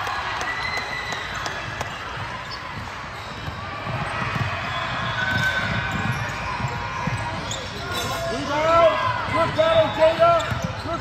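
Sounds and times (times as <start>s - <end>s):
basketball bouncing on hardwood: 2.8s - 7.4s.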